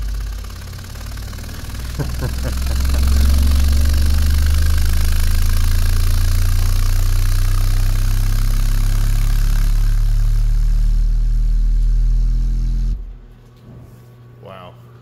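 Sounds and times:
loud low bass tone: 1.4 - 8.1.

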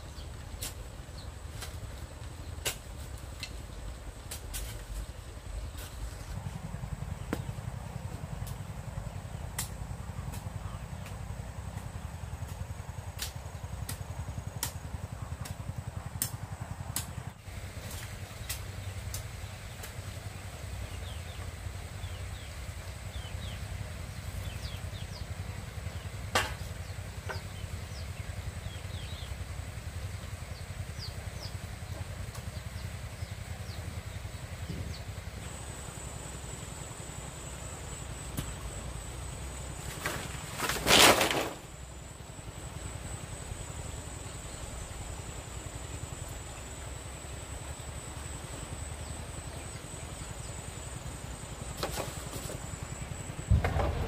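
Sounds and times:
steady low rumble: 0.0 - 39.9, 52.4 - 54.0
high insect trill: 32.6 - 54.0
loud rustling clatter: 39.8 - 41.7.

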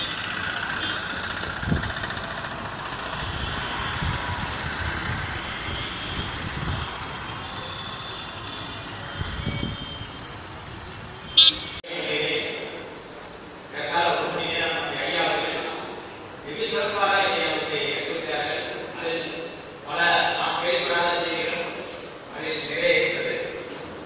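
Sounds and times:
auto-rickshaw passing: 0.0 - 11.8
motorcycle passing: 0.0 - 11.8
vehicle engines running: 0.0 - 12.0.

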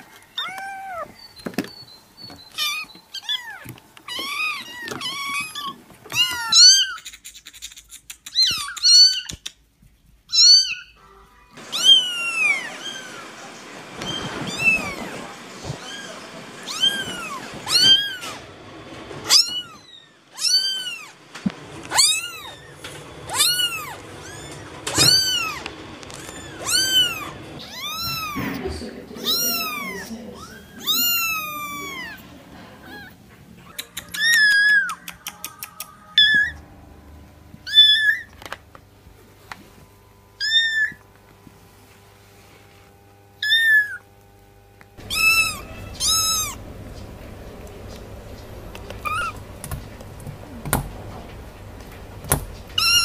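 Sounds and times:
kittens mewing: 2.5 - 9.6, 11.6 - 13.4, 14.0 - 18.5, 19.2 - 21.2, 21.9 - 36.6, 37.7 - 38.3, 40.4 - 41.0, 43.4 - 44.1, 45.0 - 47.2, 47.8 - 50.8, 52.3 - 53.0.

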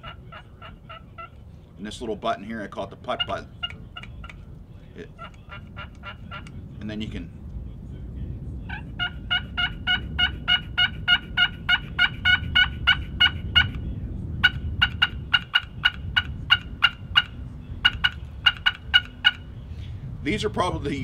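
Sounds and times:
turkey call notes: 0.0 - 2.0, 2.8 - 6.6, 8.7 - 13.8, 14.4 - 19.6.

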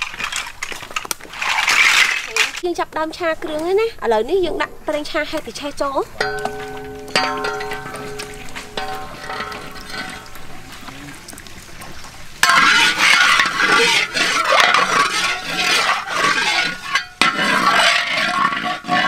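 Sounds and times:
oil sizzling: 4.3 - 19.0
metal spatula scraping wok: 5.6 - 10.9, 12.4 - 19.0
oil pouring: 6.2 - 18.1.

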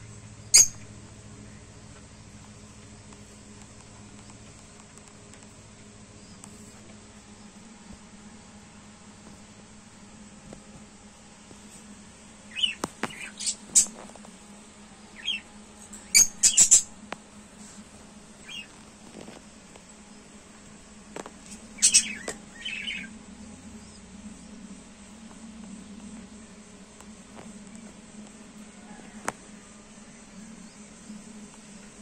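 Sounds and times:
faint steady low hum: 0.0 - 32.0
lovebirds chirping and squawking: 0.5 - 0.9, 12.5 - 14.0, 15.1 - 17.0, 18.4 - 18.8, 21.4 - 23.2.

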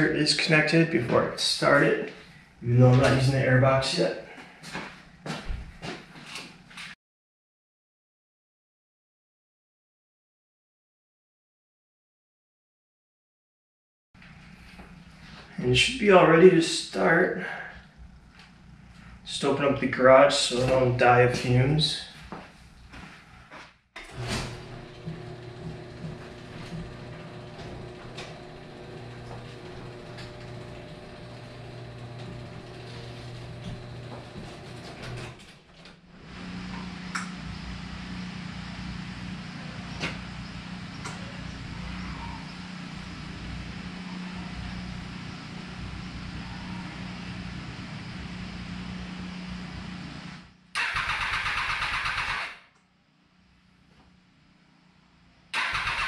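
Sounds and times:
steady low hum: 24.2 - 35.4
motorcycle engine cranking: 50.8 - 52.4, 55.6 - 56.0.

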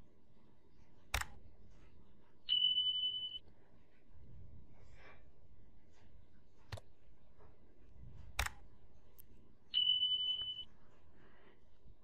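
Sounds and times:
sharp click: 1.1 - 1.4, 8.4 - 8.6.

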